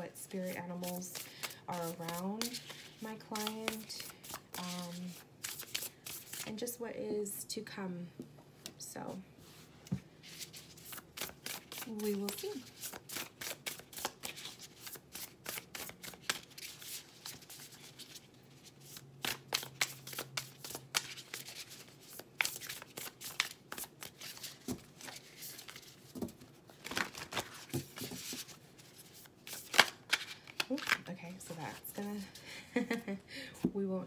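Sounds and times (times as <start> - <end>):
cards being shuffled: 0.5 - 6.5, 10.3 - 31.1.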